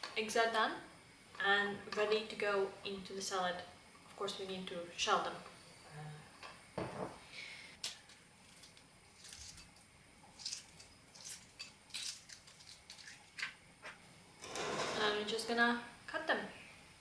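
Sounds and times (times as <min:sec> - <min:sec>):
eggshell cracking and peeling: 0:07.8 - 0:13.6.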